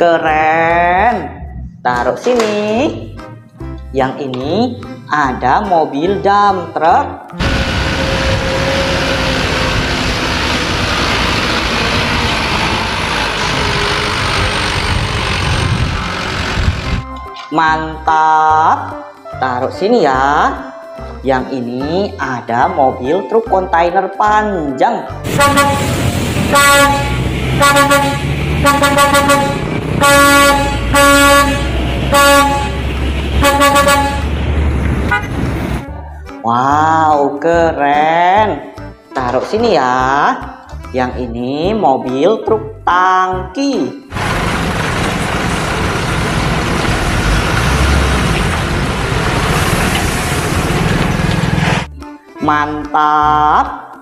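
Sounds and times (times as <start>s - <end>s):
truck air horn blasts: 7.4s - 10.3s, 25.3s - 34.4s, 35.1s - 35.5s
truck engine: 7.4s - 17.2s, 25.2s - 36.0s, 44.1s - 51.9s.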